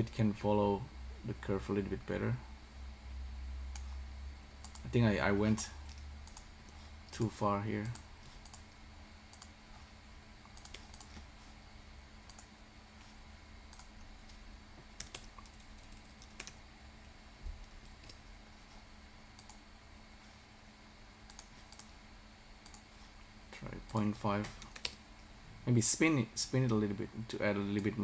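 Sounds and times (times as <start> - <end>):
faint steady hum: 0.0 - 28.0
mouse clicking: 4.6 - 4.9, 5.9 - 6.5, 7.8 - 9.6, 10.4 - 11.2, 12.2 - 12.5, 13.7 - 14.4, 15.0 - 16.6, 19.4 - 19.6, 21.3 - 22.0, 22.6 - 22.9.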